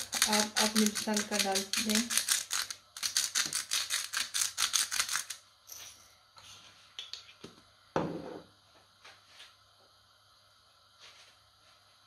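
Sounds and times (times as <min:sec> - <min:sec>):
salt shaker rattling: 0:00.0 - 0:05.4.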